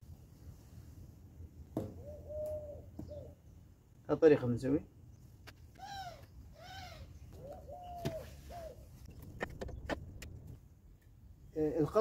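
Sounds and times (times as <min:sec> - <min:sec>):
bird calling: 0:01.8 - 0:03.6, 0:05.7 - 0:10.0.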